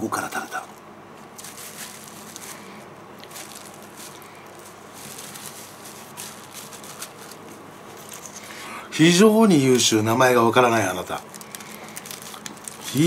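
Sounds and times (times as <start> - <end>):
paper napkin rustling: 1.2 - 8.6, 10.6 - 13.0.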